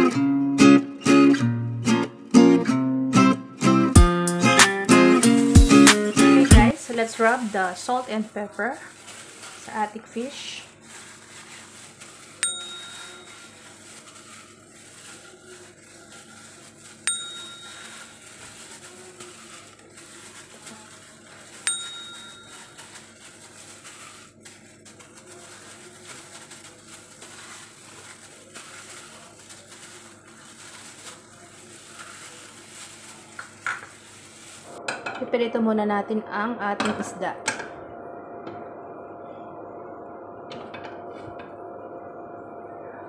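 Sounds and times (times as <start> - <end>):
hands rubbing salt on fish: 5.3 - 34.7
bright ringing dings: 12.4 - 13.5, 17.0 - 18.1, 21.6 - 22.7.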